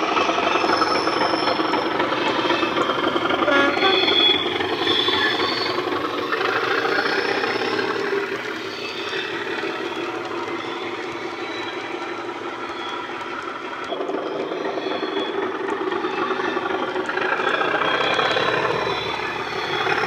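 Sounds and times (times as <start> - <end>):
model diesel engine sound: 0.0 - 20.0
model wheels rumbling on track: 0.0 - 20.0
high whistle: 0.6 - 13.2.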